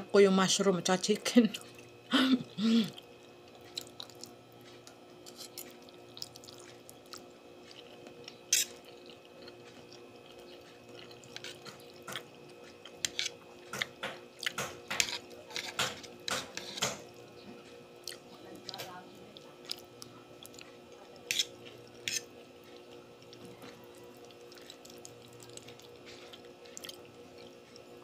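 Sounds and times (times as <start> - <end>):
wet chewing and mouth smacks: 2.9 - 14.7, 18.0 - 18.8, 19.6 - 20.8, 22.6 - 27.9.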